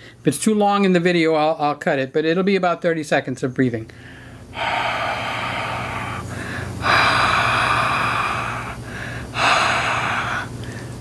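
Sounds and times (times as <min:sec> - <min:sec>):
man exhaling breaths: 0:03.9 - 0:11.0.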